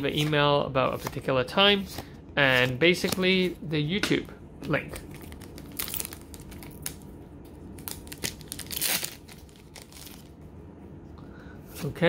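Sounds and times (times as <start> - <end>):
foil wrapper crinkling: 5.0 - 7.0, 7.7 - 10.3
foil wrapper ripping open: 5.0 - 7.0, 7.8 - 10.3.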